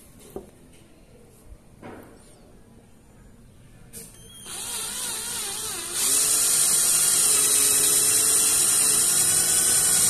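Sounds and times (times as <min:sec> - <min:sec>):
cordless drill whine boring wood: 0:04.4 - 0:10.0.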